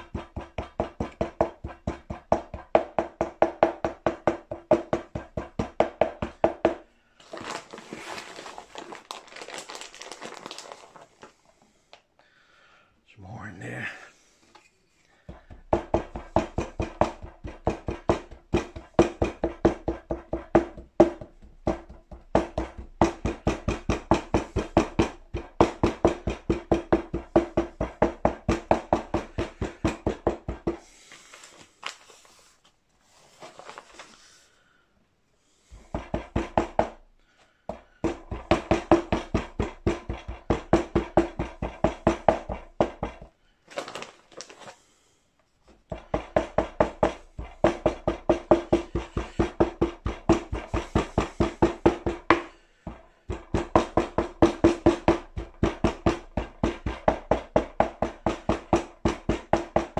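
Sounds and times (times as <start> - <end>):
wooden rammer knocking sand: 0.0 - 6.8, 15.3 - 30.8, 38.0 - 43.3, 45.9 - 59.9.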